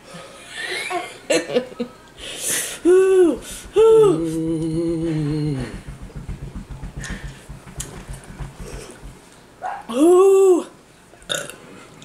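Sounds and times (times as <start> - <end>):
person crying ooh: 2.8 - 5.1, 9.9 - 10.8
closed-mouth moan: 2.9 - 5.9.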